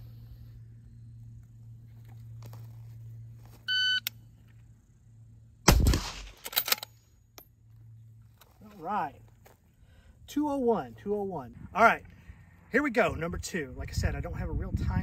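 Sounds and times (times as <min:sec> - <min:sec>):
rifle shot: 0:05.6 - 0:06.8
sharp rifle bolt clicks: 0:05.7 - 0:07.5.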